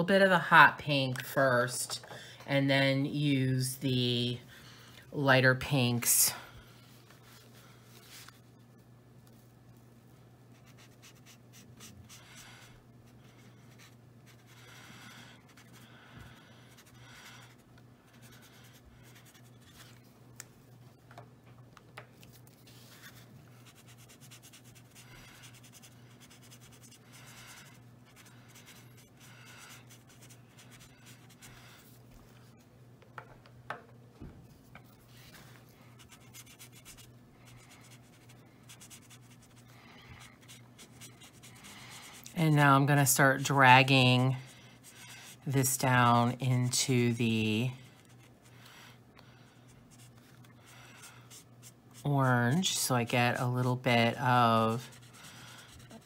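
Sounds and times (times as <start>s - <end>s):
marker rubbing across paper: 10.5s - 15.9s, 16.6s - 20.0s, 22.6s - 31.8s, 36.0s - 39.7s, 40.3s - 45.6s, 49.9s - 52.1s, 54.6s - 56.0s.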